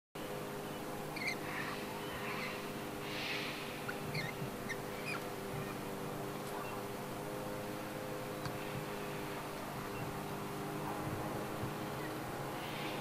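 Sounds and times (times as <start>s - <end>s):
steady low hum: 0.2s - 13.0s
soft hissy swells: 0.3s - 13.0s
high bird chirps: 0.6s - 6.9s, 11.8s - 12.2s.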